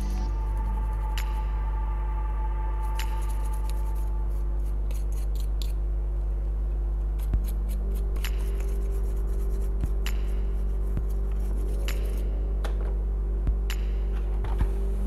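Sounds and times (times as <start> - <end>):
low electrical hum: 0.0 - 15.0
tools clicking and scraping: 4.9 - 5.8.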